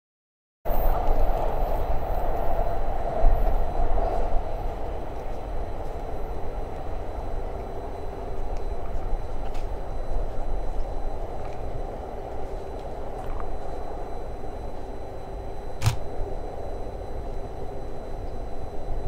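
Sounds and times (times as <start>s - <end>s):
train rumbling: 0.7s - 13.4s.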